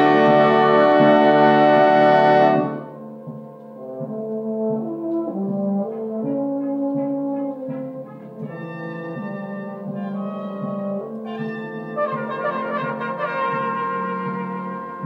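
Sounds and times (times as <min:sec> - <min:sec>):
brass band playing: 0:00.0 - 0:03.1, 0:03.8 - 0:15.0.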